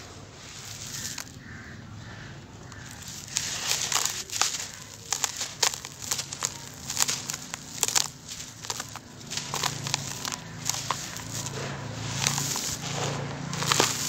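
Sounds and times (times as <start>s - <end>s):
charcoal powder crunching: 0.0s - 14.0s
powder sifting hiss: 2.9s - 14.0s.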